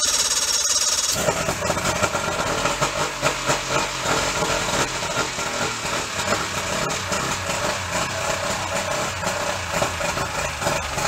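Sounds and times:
outboard engine running: 0.0s - 11.0s.

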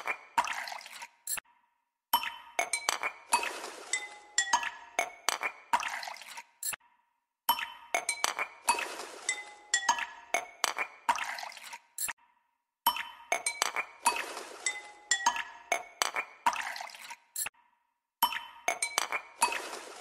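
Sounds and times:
glassy chime-like music: 14.6s - 15.9s.

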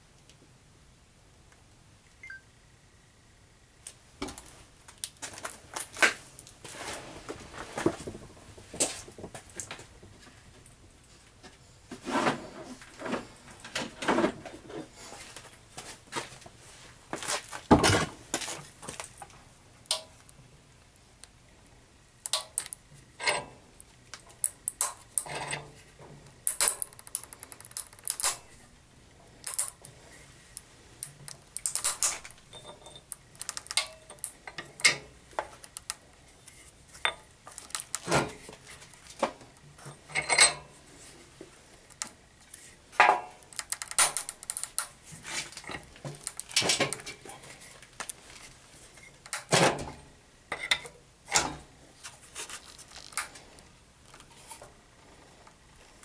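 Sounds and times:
metal vise clicking and clinking: 22.3s - 23.6s, 26.4s - 28.4s, 31.1s - 35.1s.

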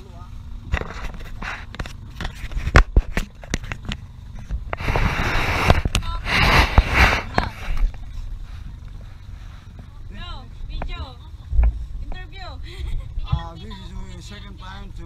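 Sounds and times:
rustling against microphone: 0.7s - 10.0s.

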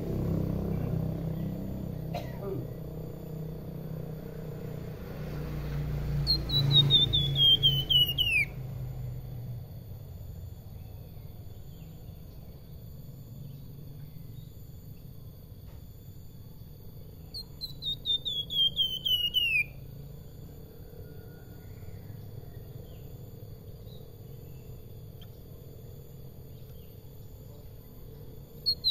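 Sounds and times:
songbird whistling: 6.2s - 8.6s, 17.2s - 19.9s, 28.6s - 28.9s.

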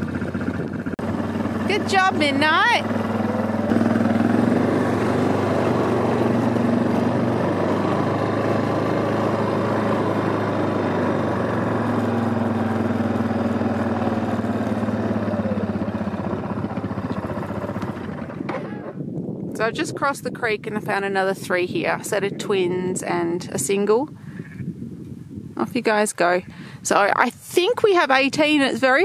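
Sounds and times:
quad bike engine running: 0.0s - 22.8s.

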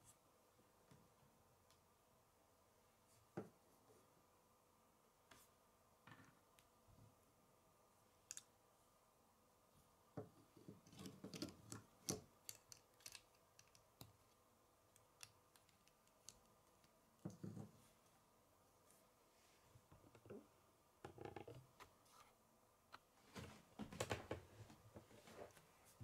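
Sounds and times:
plastic pieces clicking and rattling: 12.4s - 13.8s.

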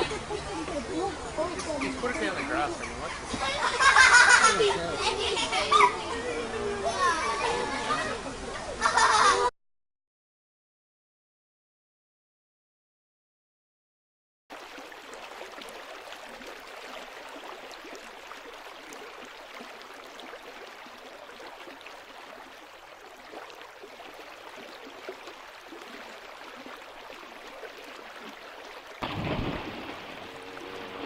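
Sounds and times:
river water rushing: 14.5s - 31.0s.

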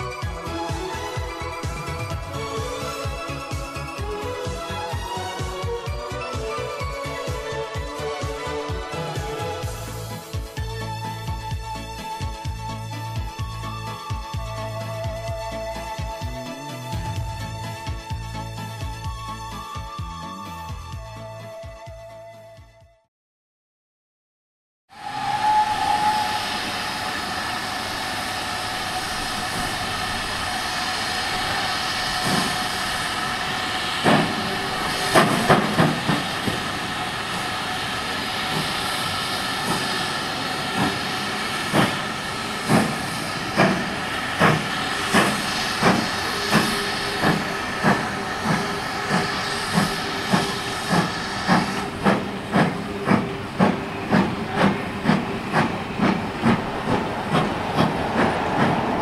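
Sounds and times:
steam hissing: 24.9s - 59.0s
heavy uneven exhaust beats: 25.0s - 59.0s
steam locomotive chuffing: 25.0s - 59.0s.

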